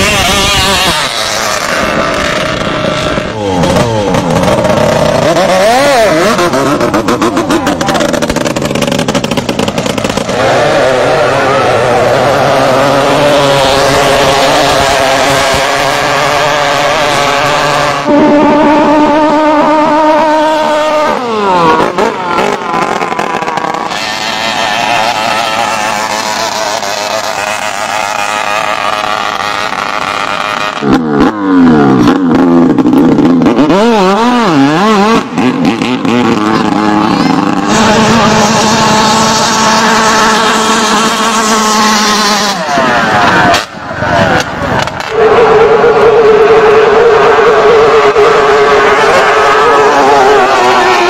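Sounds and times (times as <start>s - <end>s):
boat engines running at high revs: 0.0s - 51.0s
engine revving up and down: 0.0s - 51.0s.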